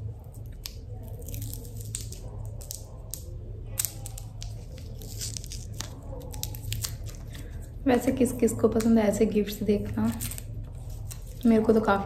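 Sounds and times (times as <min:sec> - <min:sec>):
wrapper crinkling and tearing: 0:00.3 - 0:07.8, 0:10.1 - 0:11.7.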